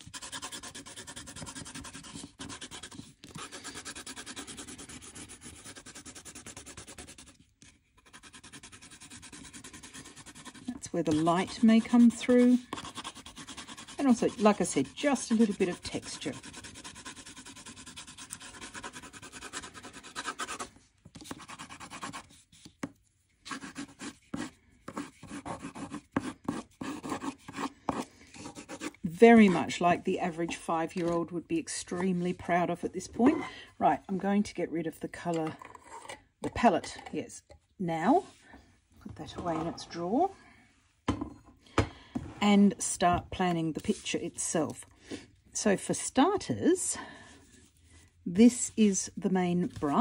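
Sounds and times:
pencil scratching on paper: 0.0s - 22.8s, 23.5s - 31.3s.

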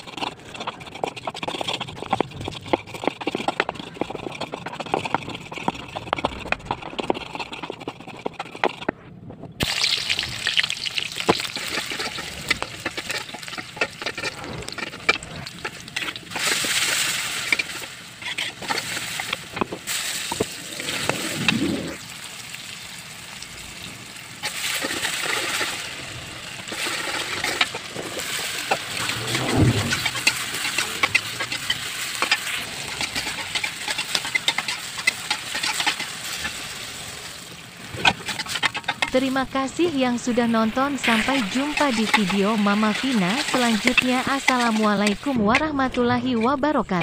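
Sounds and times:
stone pestle grinding: 0.0s - 9.0s, 9.8s - 22.0s, 26.6s - 36.8s, 37.9s - 47.0s
water hissing in hot pan: 9.6s - 14.1s, 14.7s - 38.0s
shallots sizzling in oil: 9.6s - 21.1s, 22.0s - 29.1s, 30.0s - 45.9s
metal spatula scraping pan: 11.2s - 22.0s, 26.5s - 37.2s, 37.8s - 47.0s.

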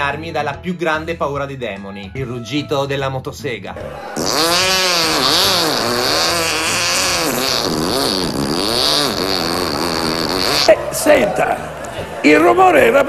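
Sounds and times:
man imitating chainsaw with voice: 4.2s - 10.7s.

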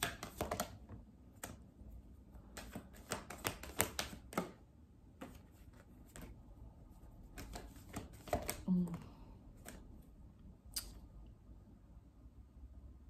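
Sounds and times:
cards clicking and tapping: 0.0s - 1.6s, 2.4s - 6.4s, 7.3s - 8.7s, 9.6s - 9.9s.

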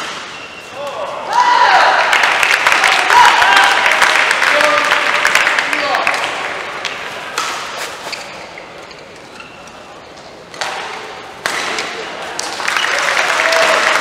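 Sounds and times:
crowd noise: 0.0s - 14.0s
racket hitting shuttlecock: 6.1s - 8.5s, 10.5s - 12.5s.

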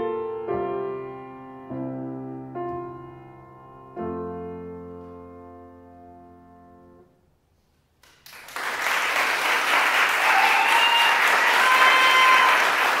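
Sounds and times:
piano chord: 0.0s - 7.2s
audience applause: 8.1s - 13.0s.

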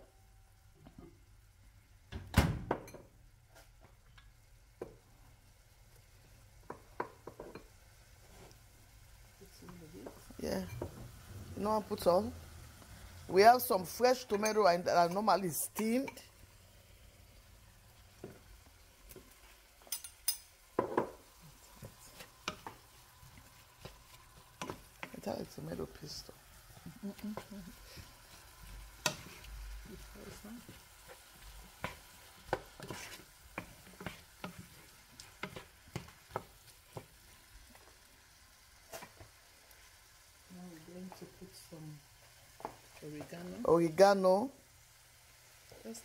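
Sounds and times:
wooden spoon in frying pan: 2.7s - 16.6s, 17.2s - 46.0s
vegetables sizzling in oil: 2.7s - 46.0s
utensil knocking on frying pan: 20.7s - 21.2s.

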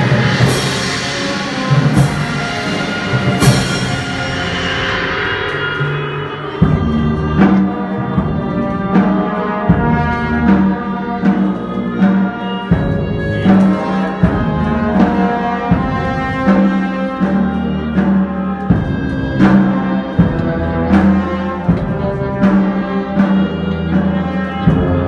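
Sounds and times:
brass band playing funeral march: 0.0s - 25.0s
steady drum stroke: 0.0s - 25.0s
tuba bass line: 6.5s - 25.0s.

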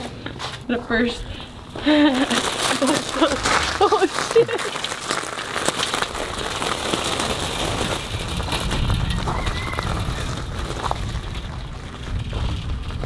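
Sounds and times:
bicycle tyres crunching on gravel: 0.0s - 13.0s
wind rumbling on microphone: 6.0s - 13.0s.

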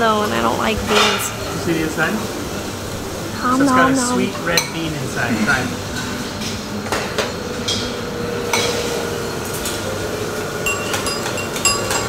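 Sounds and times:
dining room background noise: 0.0s - 12.0s
dishes and cutlery clinking: 3.9s - 9.8s, 10.6s - 12.0s.

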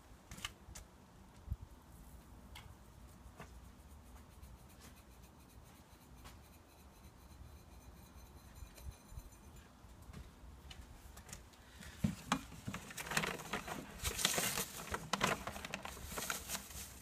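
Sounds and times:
scratchy rustles: 12.6s - 17.0s.

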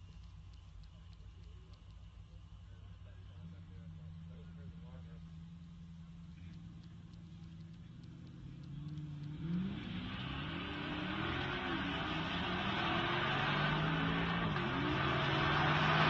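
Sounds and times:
car engines accelerating hard: 3.2s - 16.0s.

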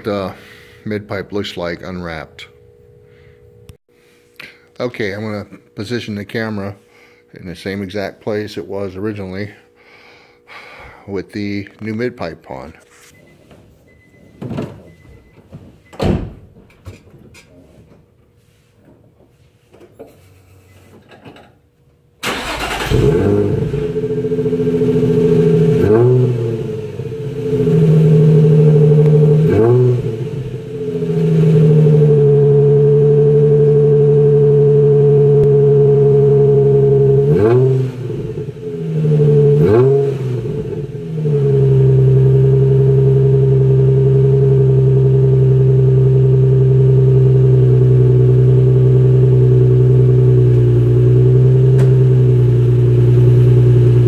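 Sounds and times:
car engine idling and revving: 22.3s - 54.0s.

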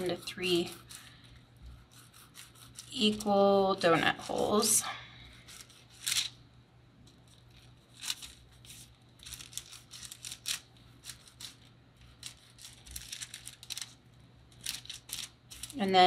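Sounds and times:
plastic sheet crinkling: 5.4s - 6.4s, 7.1s - 16.0s.

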